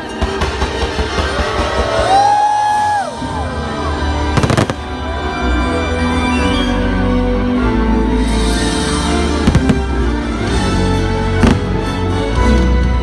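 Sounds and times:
loud music: 3.0 - 6.4
fireworks cracking: 4.4 - 4.9, 9.4 - 10.0, 11.4 - 11.9.

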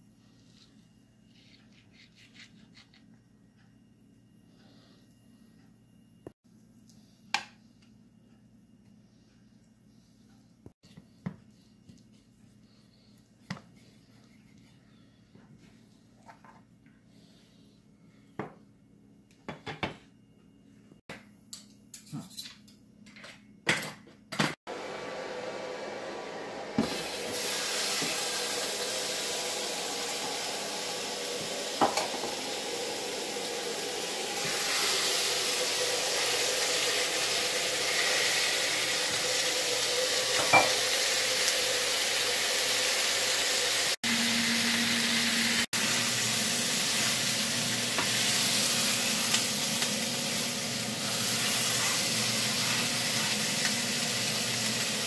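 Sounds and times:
meat sizzling in a frying pan: 26.8 - 55.0.

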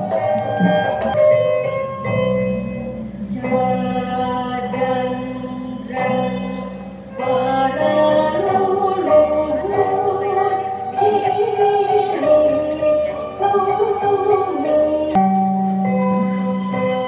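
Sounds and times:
gamelan music: 0.0 - 17.0
woman singing slow melody: 2.4 - 15.5.

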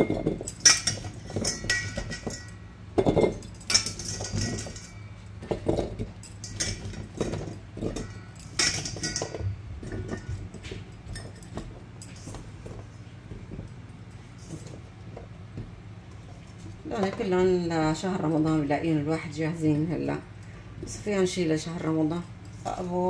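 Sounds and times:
carrot chunks clinking against glass: 0.0 - 12.6.

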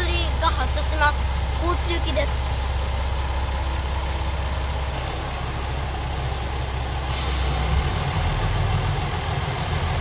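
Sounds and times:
railcar diesel engines idling: 0.0 - 10.0
hiss: 7.1 - 8.3.

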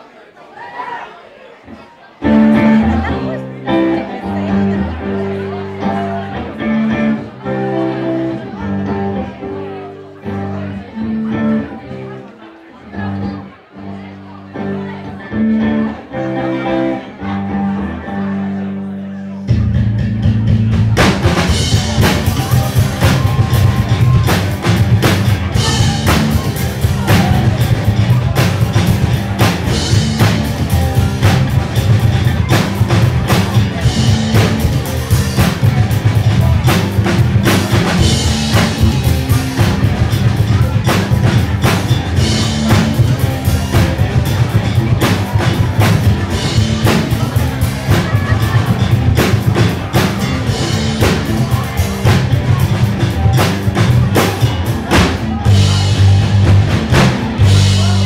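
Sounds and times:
electric guitars: 2.2 - 58.0
drum kit beat: 19.5 - 58.0.

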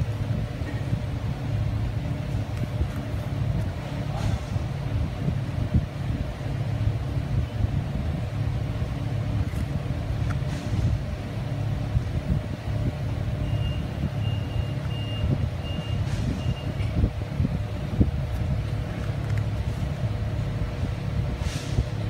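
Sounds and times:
shop machinery rumble: 0.0 - 22.0
vehicle backup alarm beeps: 13.3 - 17.1.

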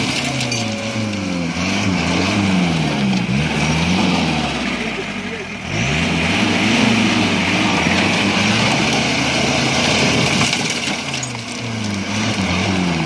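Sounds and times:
engine revving under load: 0.0 - 13.0
tyres crunching over gravel: 7.0 - 13.0.

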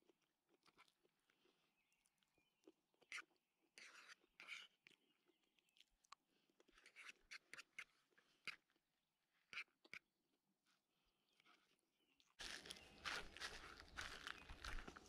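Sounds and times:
fork scraping a plate: 3.8 - 4.8, 6.8 - 8.6.

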